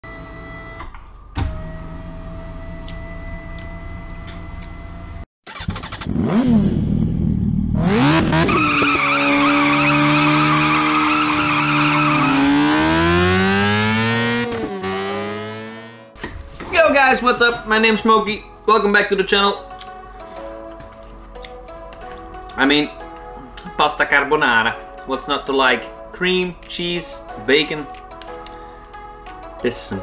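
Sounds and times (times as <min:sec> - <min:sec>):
motorcycle engine revving: 0:04.8 - 0:16.2
wavering high screech: 0:08.4 - 0:13.8.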